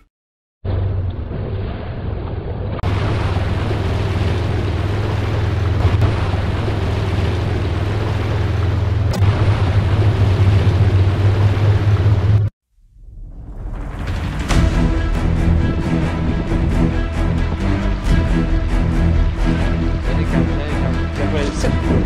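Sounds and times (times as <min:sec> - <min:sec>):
low engine drone: 0:00.7 - 0:22.0
water splashing off tyres: 0:01.1 - 0:12.5.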